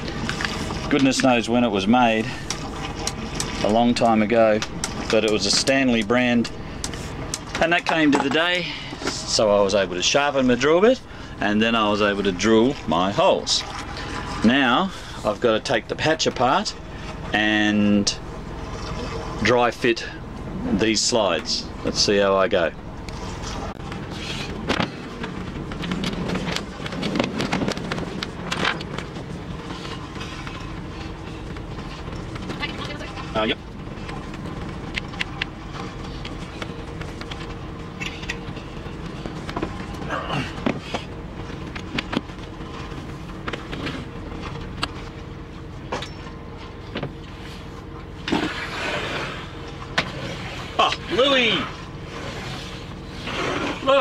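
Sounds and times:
steady background rumble: 0.0s - 54.0s
hatch cover scraping slide: 48.2s - 50.7s, 52.1s - 53.9s.

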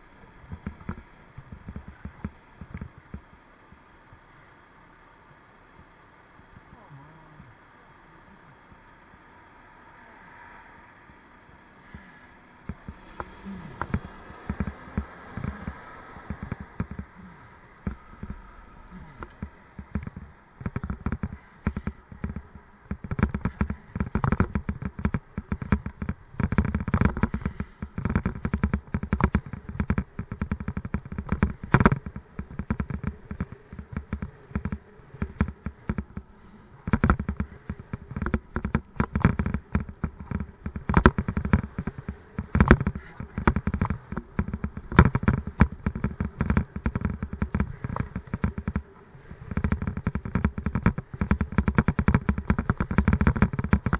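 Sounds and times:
bicycle rattling and knocking: 0.0s - 6.8s, 11.0s - 53.9s.

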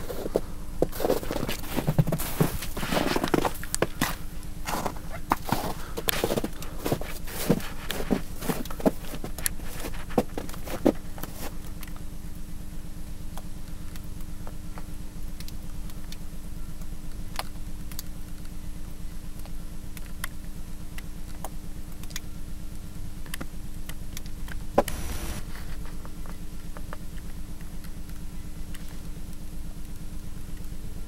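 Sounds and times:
low pulsing droning hum: 0.0s - 31.0s
short hiss of noise: 24.9s - 25.5s.

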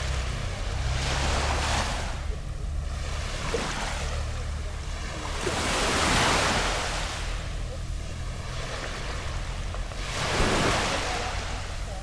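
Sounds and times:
small waves lapping on sand: 0.0s - 12.0s
steady low rumble: 0.0s - 12.0s.

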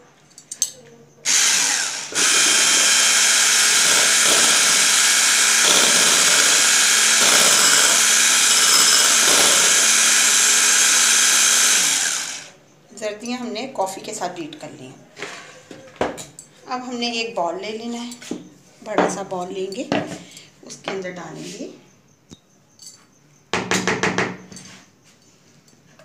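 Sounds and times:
electric hand mixer running: 1.3s - 12.5s.

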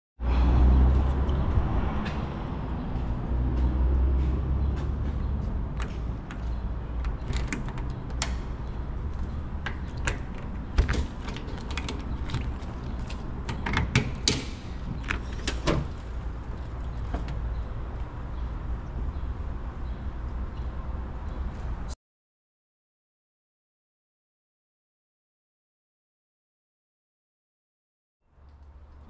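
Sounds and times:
metal latch clicking and clanking: 5.8s - 8.5s, 9.6s - 12.6s, 13.4s - 15.9s.

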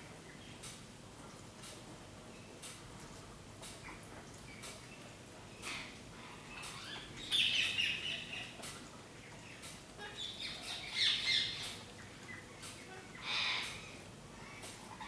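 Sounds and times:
parakeets squawking and chirping: 10.2s - 11.6s, 13.0s - 13.8s.

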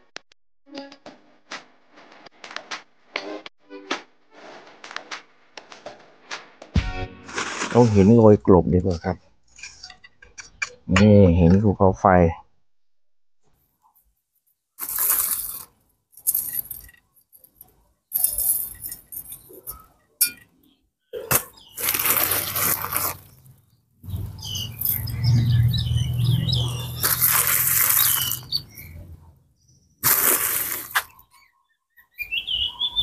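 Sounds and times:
plastic bag crinkling: 14.8s - 19.7s, 21.3s - 25.2s, 26.8s - 29.0s, 30.0s - 31.2s.

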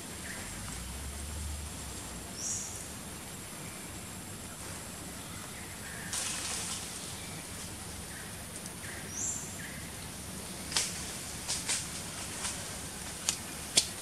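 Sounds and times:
high-pitched hiss: 0.0s - 14.0s
sharp clicks and snaps: 13.2s - 14.0s.

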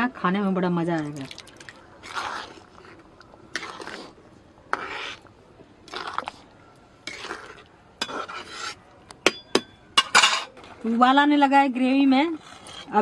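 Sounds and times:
spoon stirring gravy in a pot: 1.4s - 9.2s.

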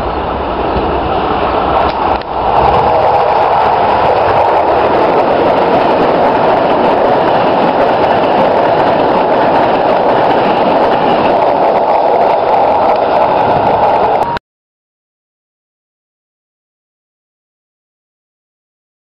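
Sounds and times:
train passing at speed: 0.0s - 14.4s.

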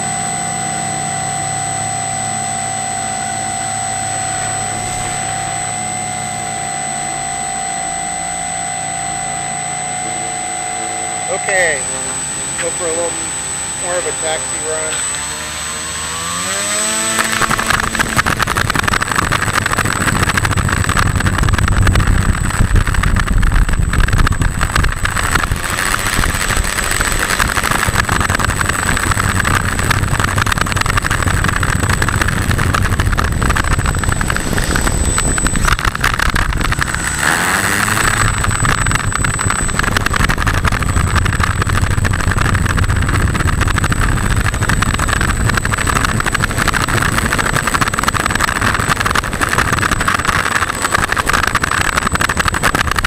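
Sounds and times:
propeller whir: 0.0s - 53.0s
small wheels rolling on road: 16.1s - 53.0s.

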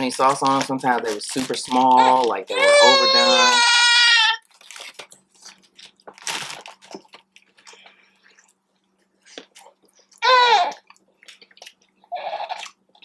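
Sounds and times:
chewing chicken wings: 9.3s - 13.0s.

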